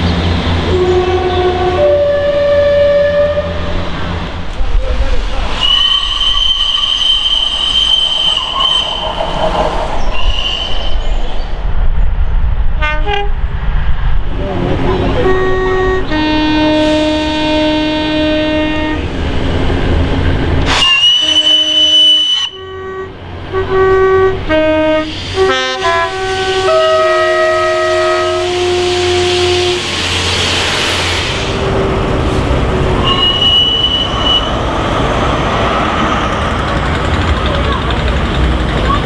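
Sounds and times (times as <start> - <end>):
train rushing past: 0.0 - 39.0
train horn blasts: 0.7 - 3.8, 12.8 - 13.4, 14.4 - 19.1, 20.7 - 30.0, 33.0 - 34.6
high whistle-like note: 5.6 - 11.1, 33.0 - 34.5.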